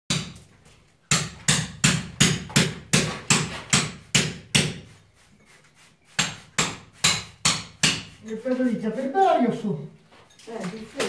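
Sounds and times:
hammer striking wall: 0.1 - 4.9, 6.2 - 8.2.

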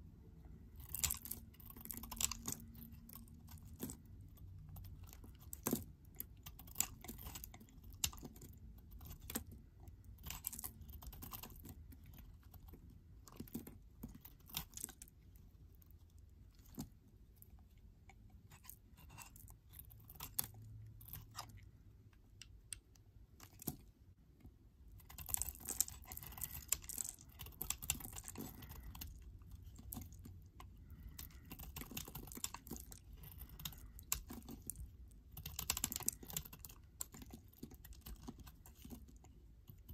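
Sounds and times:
knife shaving soap: 0.5 - 23.9, 24.9 - 39.9.

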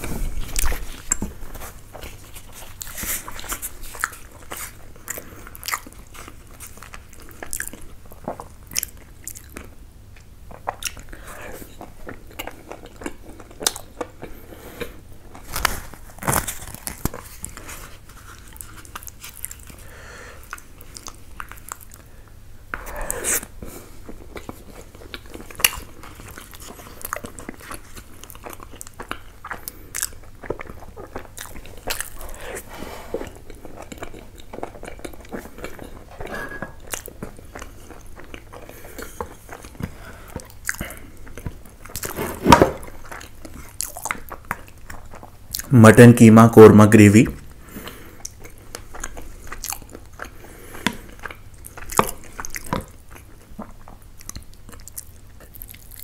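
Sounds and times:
chewing and biting food: 0.0 - 22.1, 22.8 - 45.7, 47.5 - 56.0.

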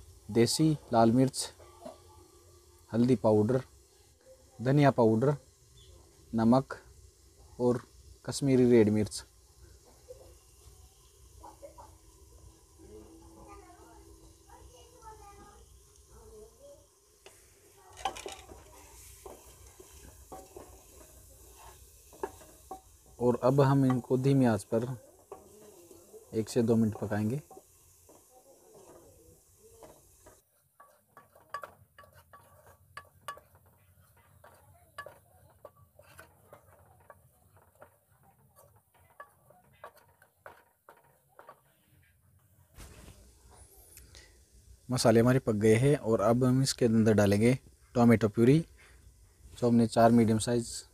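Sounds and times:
faint sizzle of spices frying: 0.0 - 50.9
spatula scraping pot: 17.2 - 42.1.

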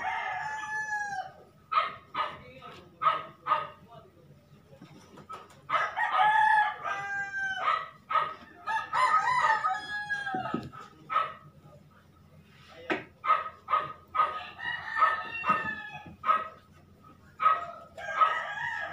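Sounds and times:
rooster crowing: 0.0 - 1.5, 5.7 - 8.0, 8.6 - 10.8, 14.2 - 16.3, 17.4 - 18.9.

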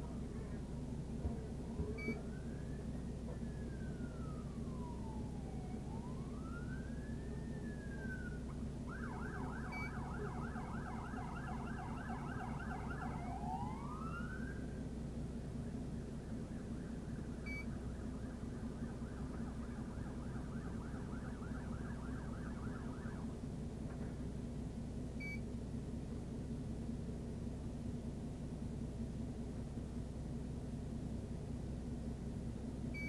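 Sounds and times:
steady low hum: 0.0 - 33.0
police siren wailing and yelping: 2.0 - 14.6, 16.4 - 23.3.

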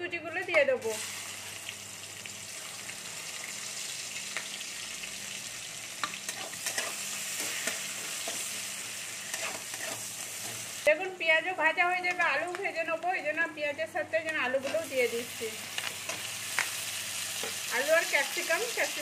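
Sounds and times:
onions sizzling in oil: 0.8 - 11.0, 14.2 - 19.0
metal spatula scraping pan: 9.3 - 10.6.

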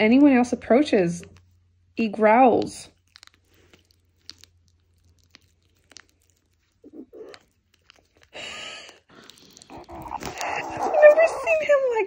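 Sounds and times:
kitten chewing plastic tube: 1.1 - 11.6
kitten growling: 6.7 - 8.4, 9.1 - 12.0
breathy rush: 8.3 - 11.9.

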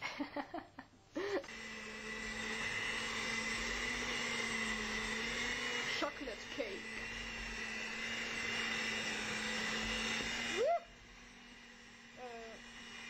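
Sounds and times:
electric hand mixer whine: 1.2 - 13.0
person speaking: 5.9 - 7.0.

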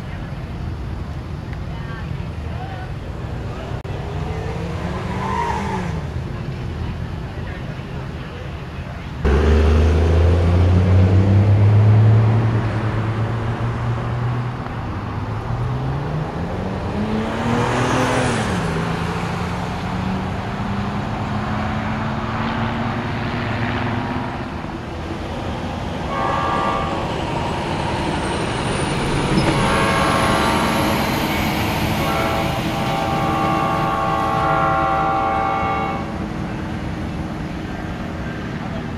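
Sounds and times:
road traffic: 0.0 - 38.9
engine revving up: 9.2 - 14.4, 15.5 - 24.4
locomotive horn blasts: 26.0 - 27.6, 29.3 - 36.2.

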